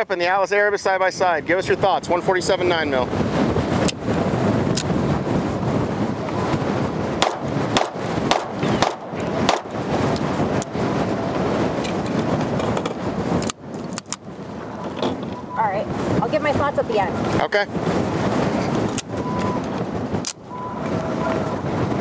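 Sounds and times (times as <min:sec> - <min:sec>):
wind noise on microphone: 0:00.0 - 0:22.0
pistol shots: 0:07.2 - 0:09.7.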